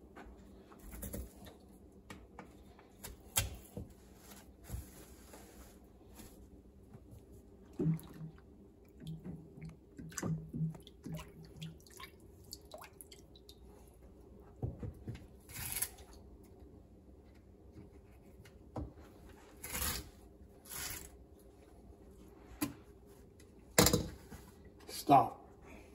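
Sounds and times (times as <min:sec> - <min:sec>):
water splashing in a metal sink: 0:07.7 - 0:13.7.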